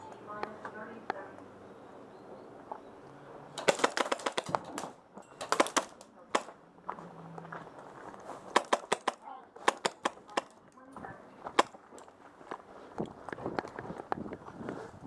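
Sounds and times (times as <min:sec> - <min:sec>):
airsoft rifle shots: 0:03.6 - 0:06.6, 0:08.5 - 0:10.6, 0:11.5 - 0:11.8.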